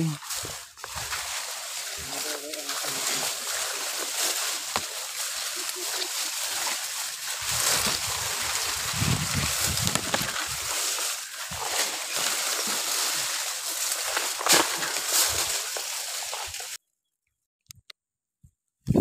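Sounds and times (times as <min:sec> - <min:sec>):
leaves and branches rustling: 0:00.0 - 0:16.8
twigs snapping: 0:00.2 - 0:16.8.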